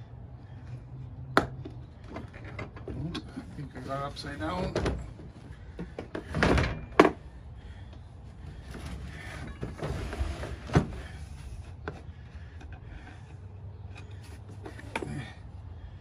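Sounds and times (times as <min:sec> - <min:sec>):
case scraping against truck bed: 0:08.5 - 0:12.0.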